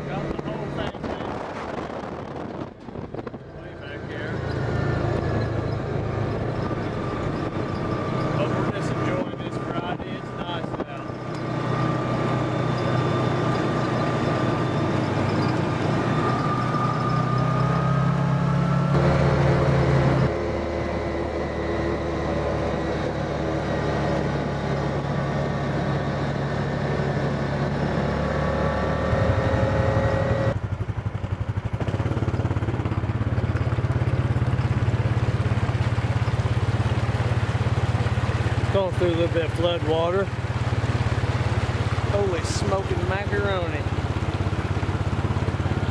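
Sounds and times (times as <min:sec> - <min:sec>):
whine rising in pitch: 0:00.0 - 0:30.6
utv engine running: 0:00.0 - 0:45.9.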